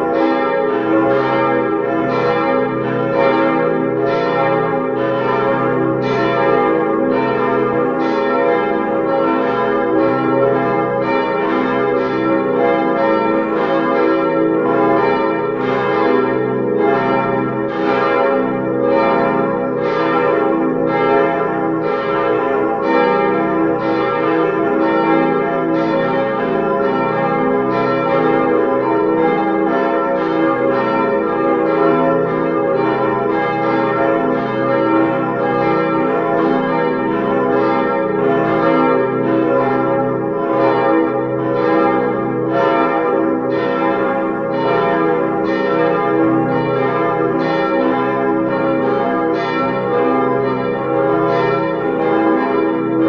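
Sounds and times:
church bells pealing: 0:00.0 - 0:53.0.

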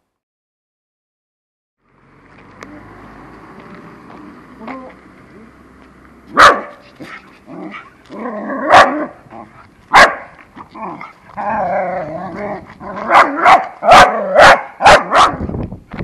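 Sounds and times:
dog barking: 0:06.3 - 0:07.8, 0:08.7 - 0:09.1, 0:09.9 - 0:10.4, 0:13.0 - 0:15.4.

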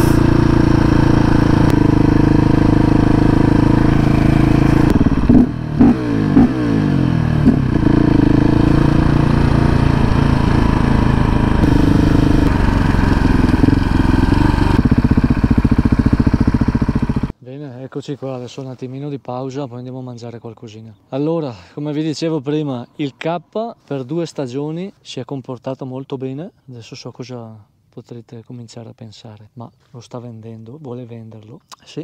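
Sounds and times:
engine throttle blips: 0:00.0 - 0:17.3
motorcycle engine idling: 0:00.0 - 0:17.3.

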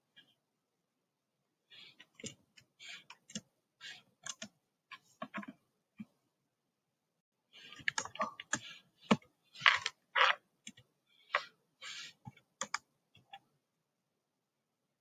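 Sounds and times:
computer keyboard typing: 0:04.2 - 0:04.5, 0:07.8 - 0:09.2, 0:12.2 - 0:13.4.

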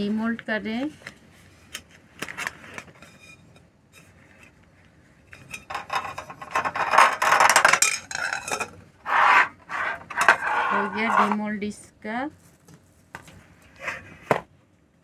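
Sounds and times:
pastry scraping metal tin: 0:05.4 - 0:11.6.

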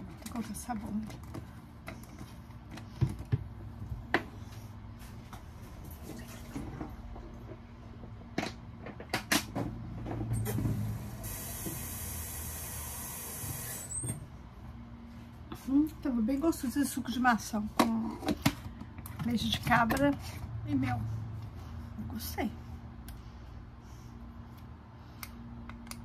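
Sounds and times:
water tap running: 0:10.8 - 0:14.0
knocks and clatters of handling: 0:17.7 - 0:20.5.

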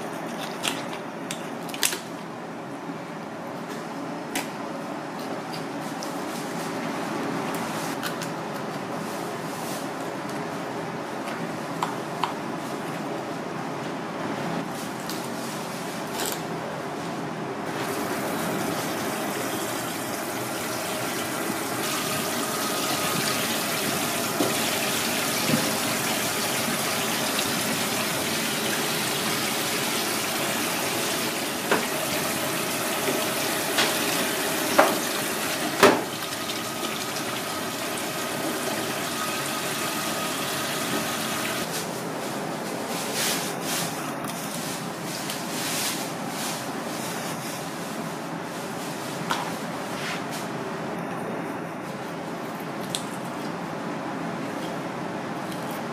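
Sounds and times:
water running from a tap: 0:17.8 - 0:41.6.

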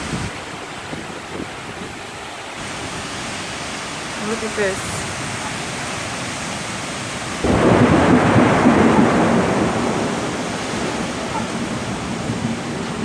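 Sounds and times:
heavy rain: 0:00.0 - 0:13.0
thunderclap rumbling: 0:07.2 - 0:13.0.

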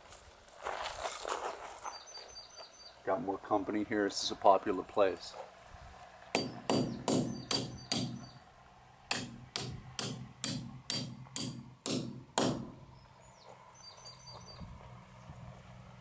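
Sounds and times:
hammer striking metal bolt: 0:06.4 - 0:08.3, 0:09.1 - 0:12.8.

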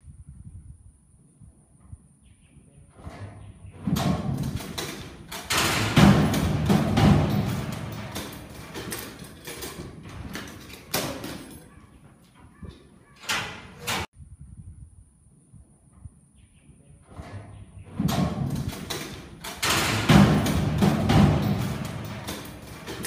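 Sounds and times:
metal banging: 0:03.0 - 0:14.1, 0:17.1 - 0:23.0
metal gate clanging and rattling: 0:03.0 - 0:14.1, 0:17.1 - 0:23.0.

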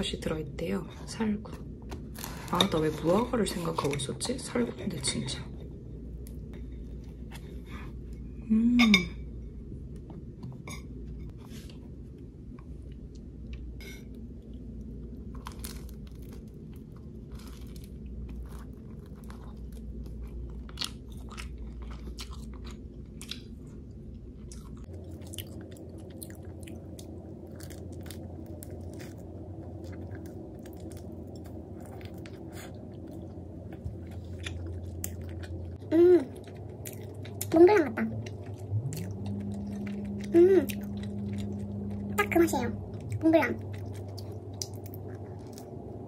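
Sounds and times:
person chewing crisp pastry: 0:12.6 - 0:46.0.

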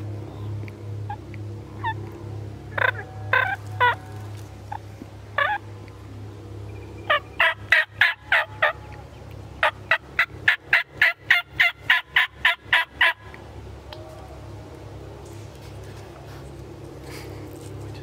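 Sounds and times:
turkey yelps: 0:02.8 - 0:04.2, 0:07.1 - 0:08.8, 0:09.6 - 0:13.2.

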